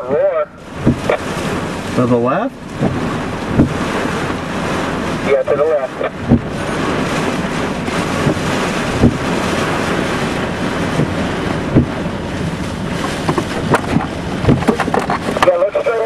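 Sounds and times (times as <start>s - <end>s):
storm wind rushing: 0.0s - 15.5s
heavy rain battering a car: 0.0s - 16.0s
dull thumps: 0.8s - 1.4s, 2.6s - 4.2s, 6.2s - 6.6s, 8.2s - 9.4s, 10.9s - 12.1s, 12.9s - 15.5s.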